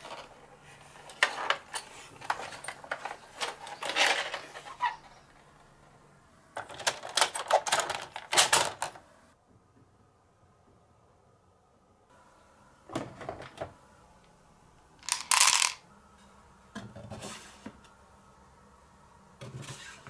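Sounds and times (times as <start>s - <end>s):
plastic toy clicking and rattling: 6.6s - 9.0s, 15.0s - 15.8s.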